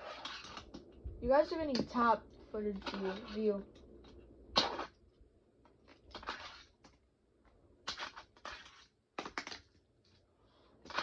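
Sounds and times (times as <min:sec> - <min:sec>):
fingerboard scraping and rolling: 0:00.0 - 0:00.8, 0:07.9 - 0:09.0.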